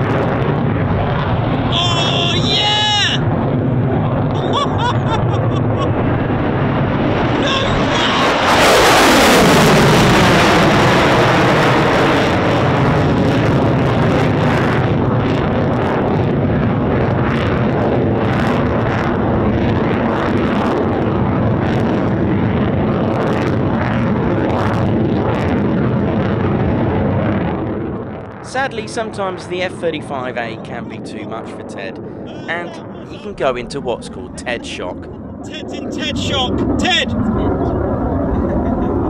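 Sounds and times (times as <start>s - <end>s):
crackle in jet roar: 0.0s - 39.0s
jet engine roar: 0.0s - 39.0s.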